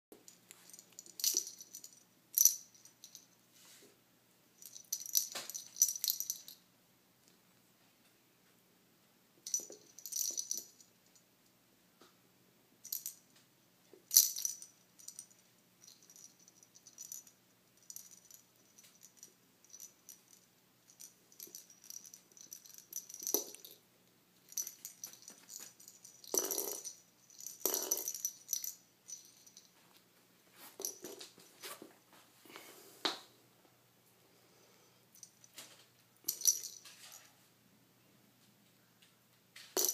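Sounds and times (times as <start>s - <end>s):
cat toy lure rattling: 0.3s - 3.3s, 9.5s - 10.8s, 14.1s - 23.8s, 24.5s - 29.7s.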